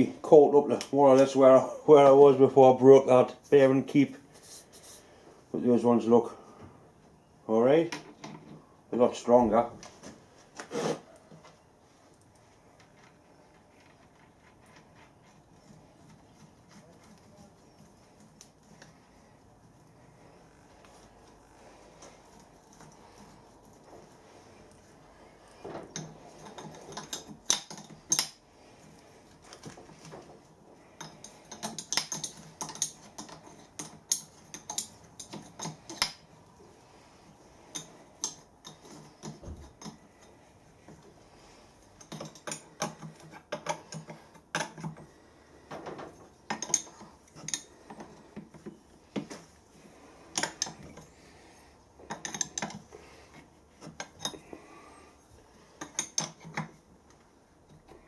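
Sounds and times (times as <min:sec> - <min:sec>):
metal parts clinking: 0:31.0 - 0:36.3, 0:53.8 - 0:54.6
spanner clinking on nut: 0:31.0 - 0:36.3, 0:42.0 - 0:45.1, 0:46.5 - 0:48.0, 0:52.1 - 0:52.8, 0:53.8 - 0:54.6, 0:55.8 - 0:56.6.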